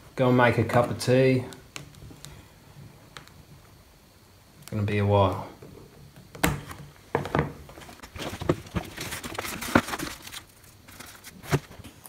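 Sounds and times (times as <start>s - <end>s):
covering tearing off: 8.0s - 11.8s.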